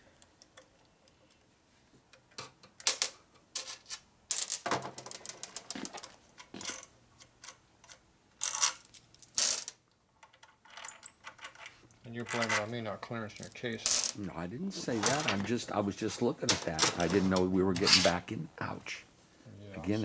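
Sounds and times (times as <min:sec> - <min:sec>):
metal parts clicking and clinking: 0:02.3 - 0:14.2.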